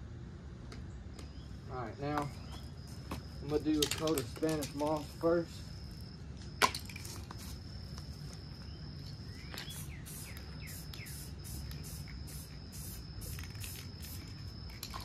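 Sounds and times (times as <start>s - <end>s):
bird chirping: 0.8s - 2.9s, 8.6s - 11.4s
high-pitched insect drone: 1.7s - 15.0s
spray paint can hissing: 6.8s - 7.7s, 9.1s - 15.0s.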